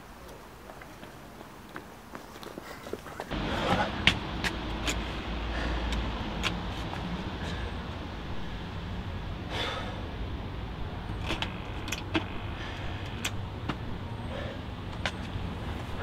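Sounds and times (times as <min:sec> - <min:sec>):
low outdoor rumble: 0:03.3 - 0:16.0.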